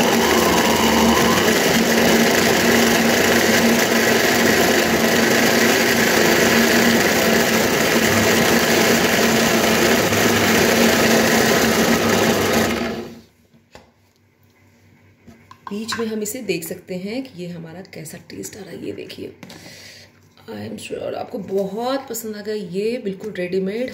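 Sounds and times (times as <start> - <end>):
mixer grinder humming: 0.0 - 13.3.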